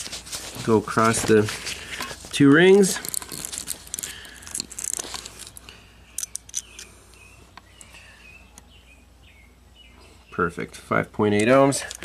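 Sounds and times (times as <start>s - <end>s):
multimeter probes clicking: 3.0s - 8.0s.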